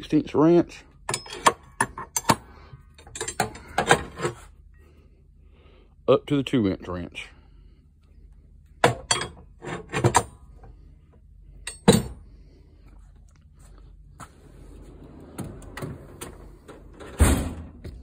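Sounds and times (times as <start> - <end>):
wrenches clanking in metal drawer: 1.1 - 2.4, 3.0 - 4.4, 8.9 - 10.3
drawer rumbling on slides: 14.4 - 17.8
drawer closing bang: 17.0 - 17.8.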